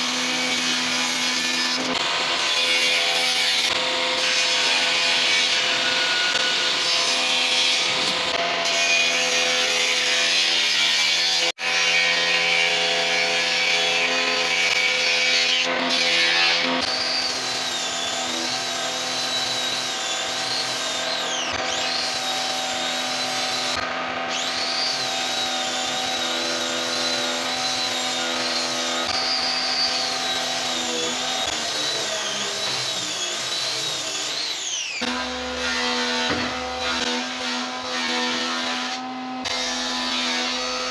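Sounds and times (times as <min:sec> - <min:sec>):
angle grinder sanding wood: 0:13.6 - 0:40.9.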